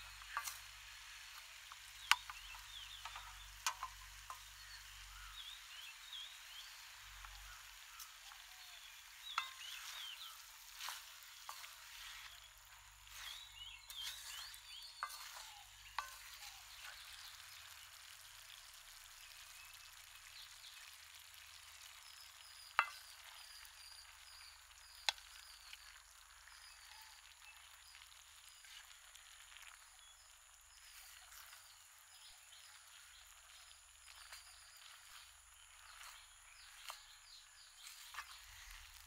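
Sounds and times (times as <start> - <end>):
noodles turned with wooden spoon: 0.0 - 5.0, 5.9 - 18.4
faint sizzling in a wok: 0.0 - 39.0.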